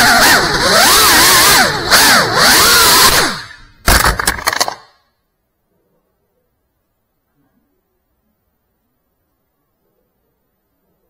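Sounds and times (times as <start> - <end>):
drone motors whining: 0.0 - 3.8
knocks and clatter: 3.8 - 5.0.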